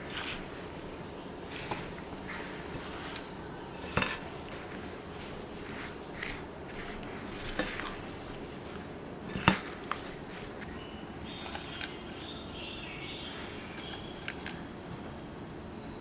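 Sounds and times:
steady low hum: 0.0s - 16.0s
fruit slices laid in tin: 1.4s - 12.4s, 13.7s - 14.6s
paper clicks: 11.4s - 12.4s, 13.8s - 14.6s.

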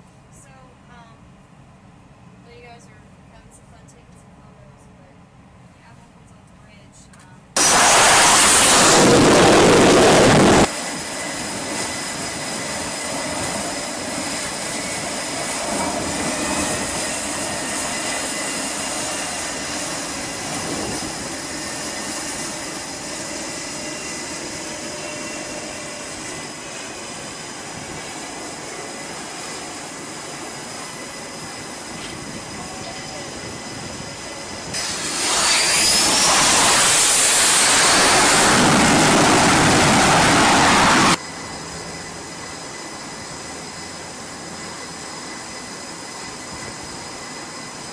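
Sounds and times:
jet engines rushing with whine: 7.5s - 47.9s
loud jet engine blast: 7.6s - 44.5s.

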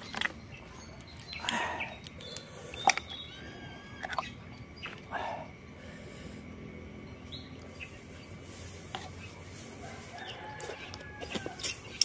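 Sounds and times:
oyster shells clicking: 0.0s - 3.2s.

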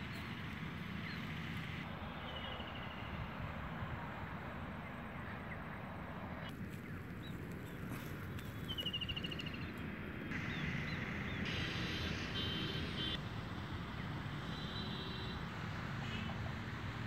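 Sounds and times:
bird chirps: 6.8s - 9.7s.

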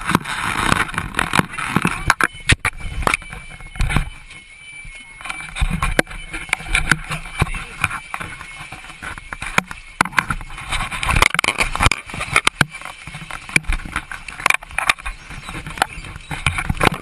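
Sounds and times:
voices of people: 4.9s - 10.0s.

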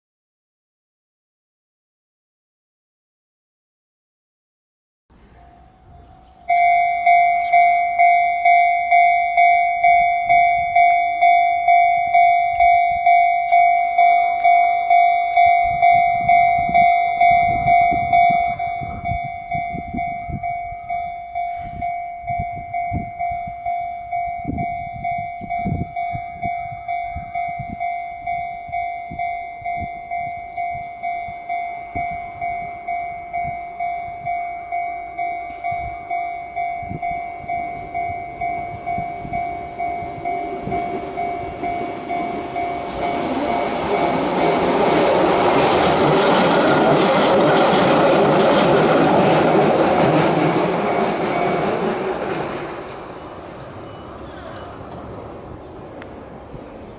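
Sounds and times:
electric train running: 5.2s - 54.9s
level crossing bell ringing: 5.4s - 45.2s.

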